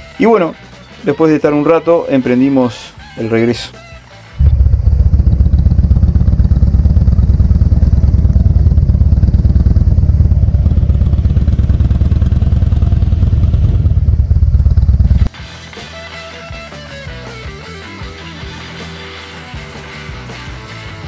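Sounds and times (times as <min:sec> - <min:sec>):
motorcycle engine droning: 0:04.4 - 0:15.3.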